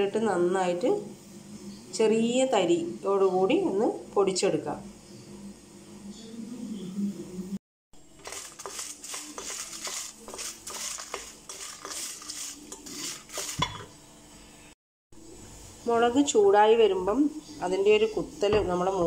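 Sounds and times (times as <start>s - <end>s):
chillies rattling in pan: 8.2s - 13.8s
wooden spatula scraping steel pan: 8.2s - 13.9s.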